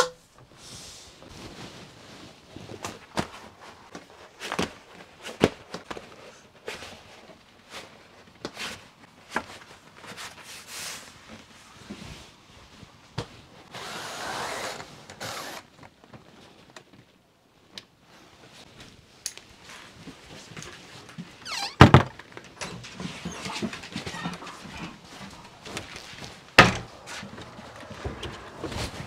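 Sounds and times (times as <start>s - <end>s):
door squeak: 21.4s - 25.1s
wooden door knocking shut: 26.6s - 26.9s.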